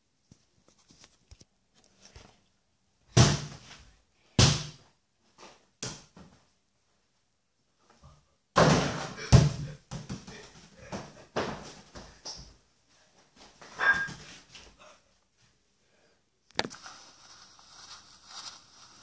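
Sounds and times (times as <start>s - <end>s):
small ball bouncing on hard floor: 8.6s - 12.6s.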